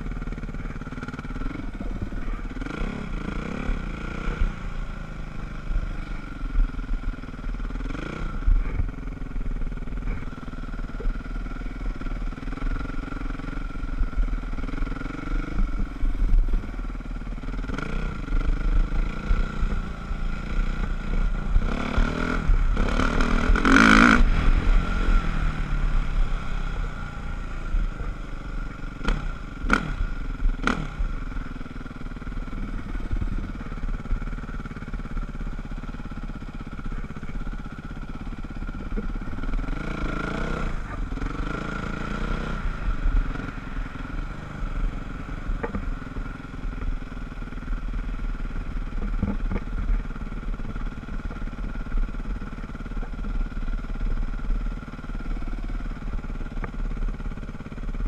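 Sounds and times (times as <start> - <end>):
dirt bike engine revving: 0.0 - 16.8, 17.4 - 31.4, 32.0 - 46.0.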